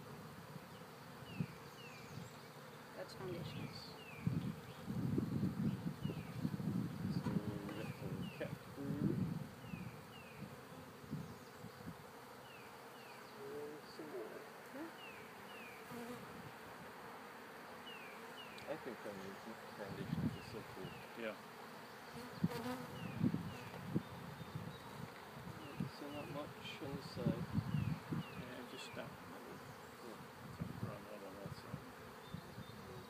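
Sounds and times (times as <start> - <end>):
honeybees buzzing: 0.0 - 33.0.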